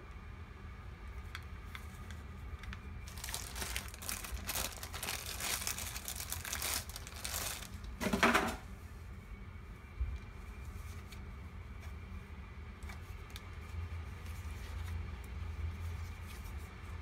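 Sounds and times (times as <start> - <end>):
plastic bag crinkling: 2.7 - 8.0.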